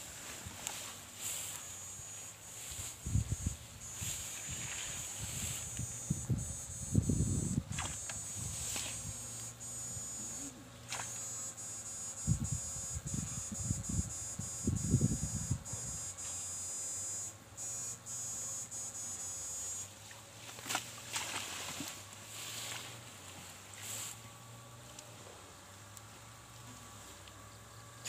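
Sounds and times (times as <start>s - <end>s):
footsteps through tall grass: 0.0s - 6.4s, 7.3s - 9.4s, 20.4s - 24.2s
high-pitched electric buzz: 0.0s - 23.2s.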